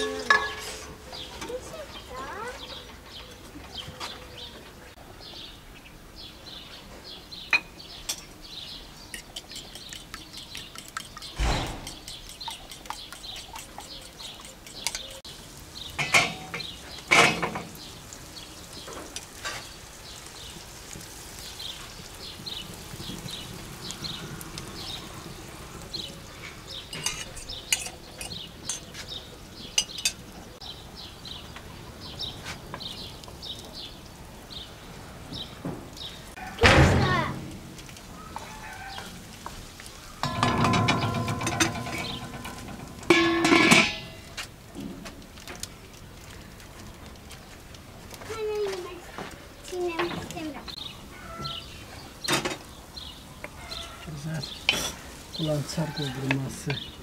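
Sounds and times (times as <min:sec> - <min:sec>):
dishes and utensils clinking: 0:00.0 - 0:01.6, 0:09.1 - 0:15.2, 0:16.0 - 0:17.8, 0:26.9 - 0:29.0, 0:29.8 - 0:30.2, 0:40.2 - 0:44.3
birds chirping: 0:00.0 - 0:57.0.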